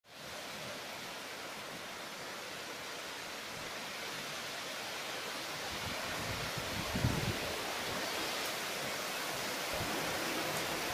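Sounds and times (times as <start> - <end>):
rain falling on foliage: 0.1 - 10.9.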